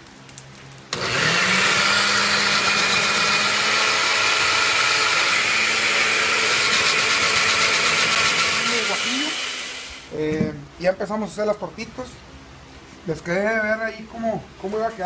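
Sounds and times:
blender motor running: 0.9s - 10.1s.

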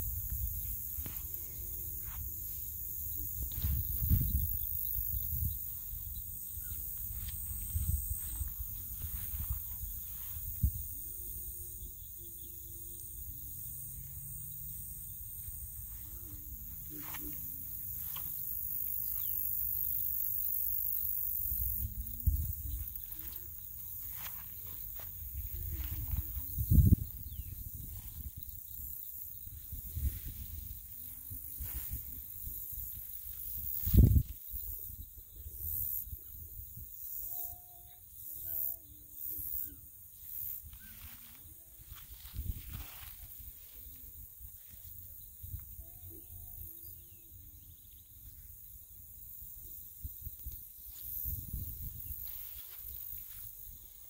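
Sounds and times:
insects shrilling: 0.0s - 54.0s
wind rumble on microphone: 3.1s - 12.2s, 21.8s - 24.3s, 25.1s - 37.0s, 41.8s - 44.6s, 50.0s - 52.5s.

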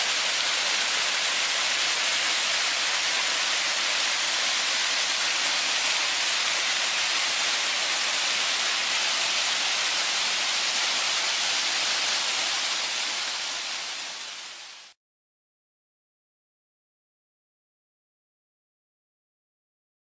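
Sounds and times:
mountain stream rushing: 0.0s - 15.0s.

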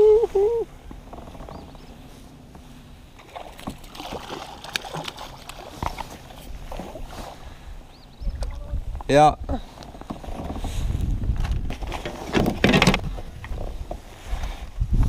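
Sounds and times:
fish splashing in water: 3.2s - 6.8s.

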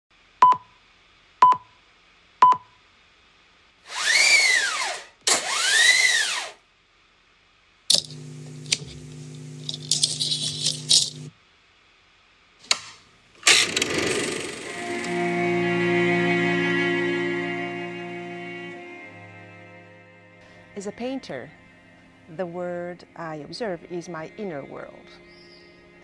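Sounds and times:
mechanical hum with rattling: 7.9s - 11.3s, 13.4s - 15.2s.

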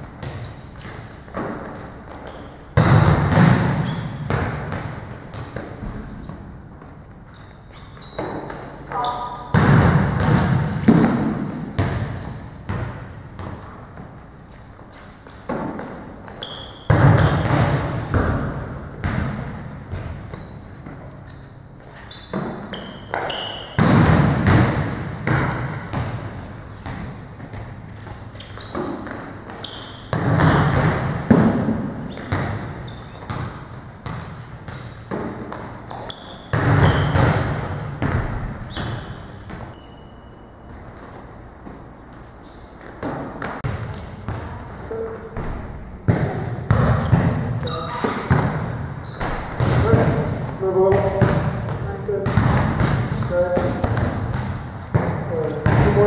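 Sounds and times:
sneaker squeaks on court: 1.7s - 4.9s, 7.3s - 9.6s, 11.8s - 13.5s, 14.9s - 18.1s, 19.9s - 23.8s, 25.6s - 30.8s, 32.0s - 41.7s, 42.4s - 50.3s
volleyball struck hard: 2.8s - 4.9s, 9.5s - 12.1s, 23.8s - 26.2s.

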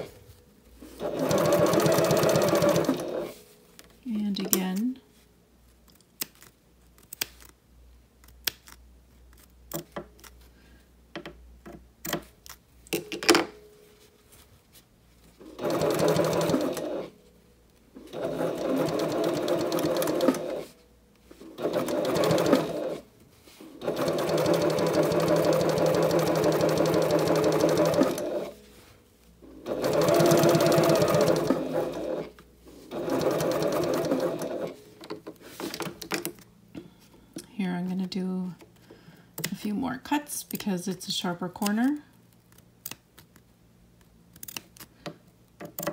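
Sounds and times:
sewing machine running: 1.0s - 3.4s, 15.5s - 17.1s, 18.0s - 20.7s, 21.4s - 23.0s, 23.7s - 28.6s, 29.6s - 32.3s, 32.9s - 34.8s.

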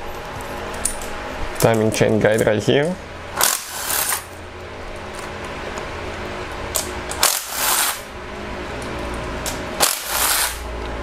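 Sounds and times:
hand ratchet clicking: 9.8s - 10.6s.

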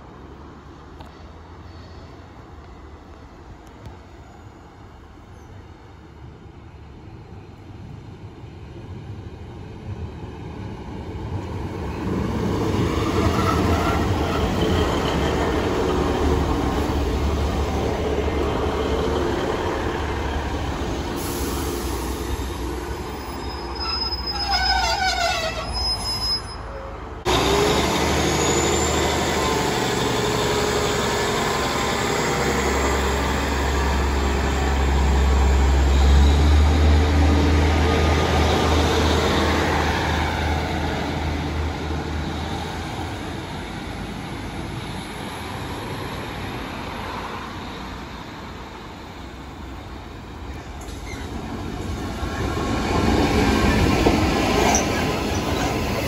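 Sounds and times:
diesel train engine and wheels: 0.0s - 56.0s
brief squeal: 23.0s - 27.0s, 27.7s - 30.2s, 50.5s - 51.4s.

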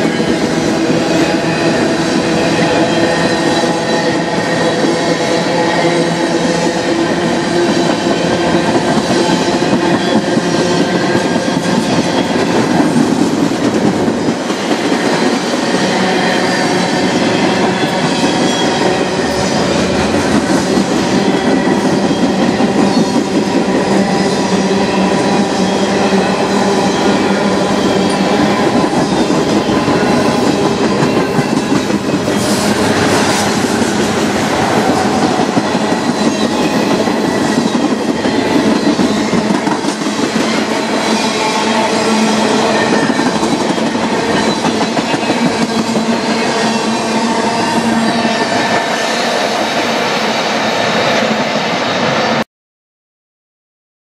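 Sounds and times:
train wheels rumbling over rails: 0.0s - 52.3s.

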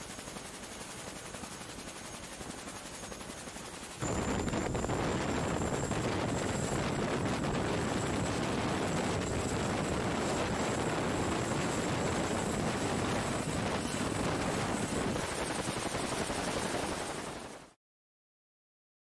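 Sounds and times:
helicopter lifting off: 3.8s - 17.8s.

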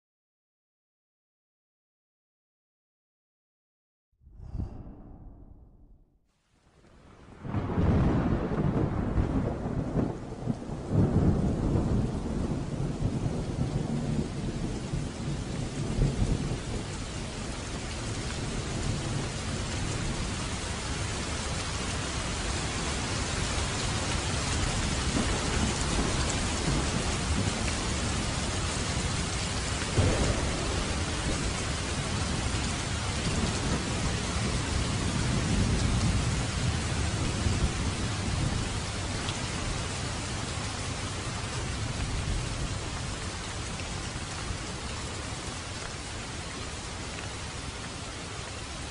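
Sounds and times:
thunder rumbling: 4.3s - 6.2s, 7.4s - 21.5s, 22.1s - 39.2s
heavy rain on asphalt and leaves: 6.8s - 48.9s.

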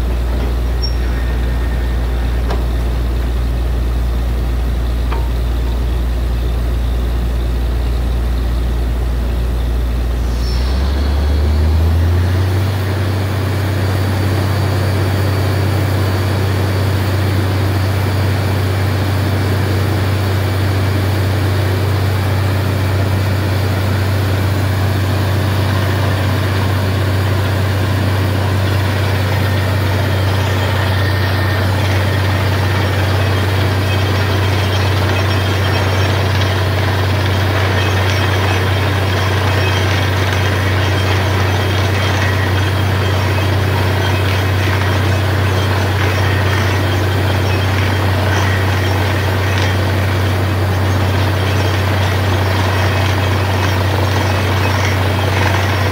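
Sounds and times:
drilling rig engine running: 0.0s - 55.9s.

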